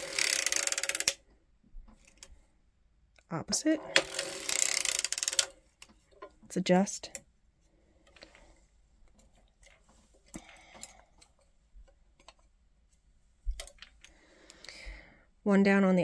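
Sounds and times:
knitting machine parts clicking: 0.0s - 1.3s, 1.9s - 2.4s, 3.5s - 7.3s, 8.0s - 12.6s, 13.5s - 14.7s.

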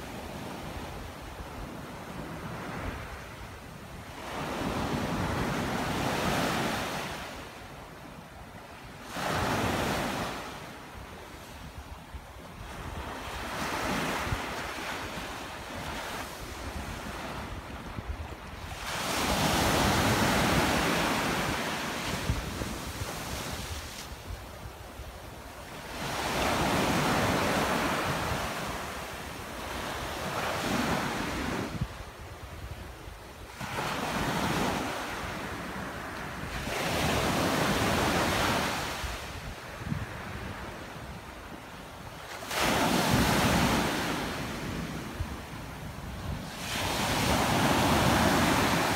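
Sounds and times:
wind rumbling on microphone: 34.2s - 41.6s.

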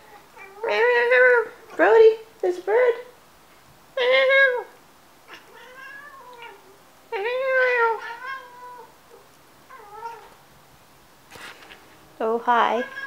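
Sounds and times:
cats chirping: 5.3s - 10.4s.

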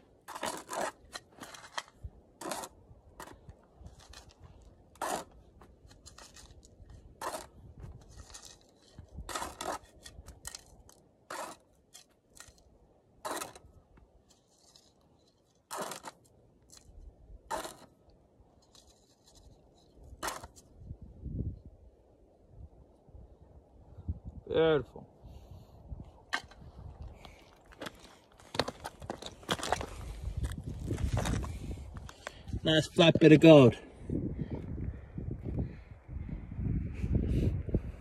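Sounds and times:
loose dirt rustling: 0.0s - 24.4s, 25.2s - 35.6s
plastic scoop scraping gravelly soil: 0.2s - 12.6s, 13.2s - 13.7s, 14.3s - 17.9s.

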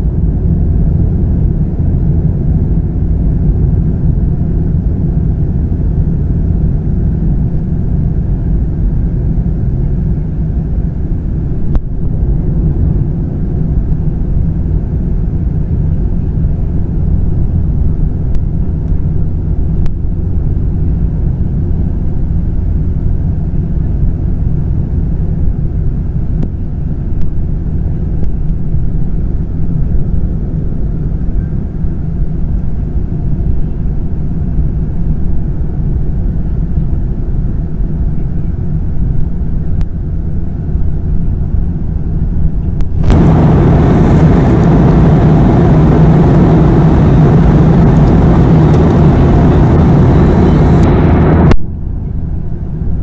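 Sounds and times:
airplane cabin drone: 0.0s - 53.0s
air rushing: 42.8s - 52.0s.

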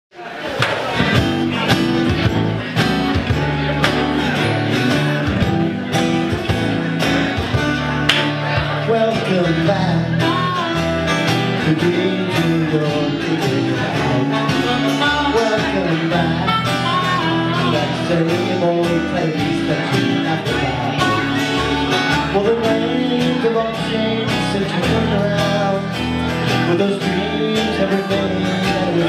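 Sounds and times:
acoustic guitars strumming: 0.7s - 29.0s
harmonica melody: 9.6s - 29.0s.

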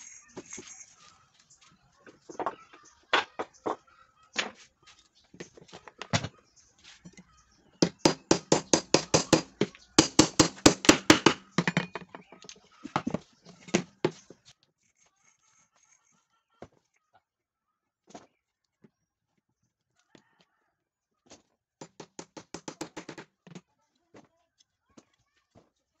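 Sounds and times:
hammer tapping wood: 7.8s - 12.3s, 21.8s - 23.6s.

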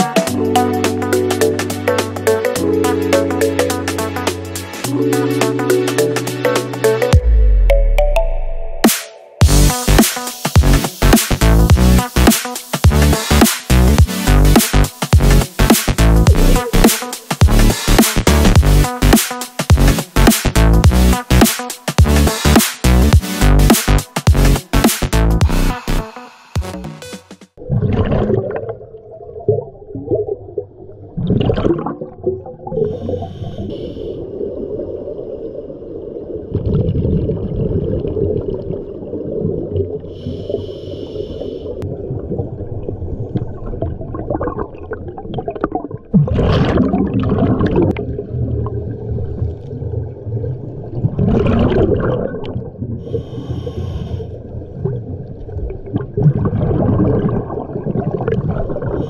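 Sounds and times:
exhaled bubbles bursting: 27.6s - 33.2s, 36.4s - 40.1s, 41.8s - 53.1s, 54.7s - 59.0s
low rumble of water: 27.6s - 40.7s, 41.8s - 59.0s
hissing regulator inhales: 33.0s - 34.3s, 40.1s - 41.8s, 53.0s - 54.4s.

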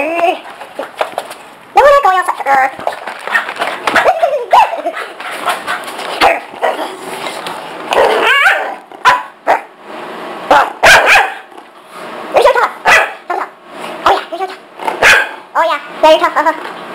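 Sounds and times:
dog barking and yipping: 3.3s - 6.8s, 8.0s - 9.7s, 10.5s - 11.5s, 12.8s - 13.2s, 15.0s - 15.4s.

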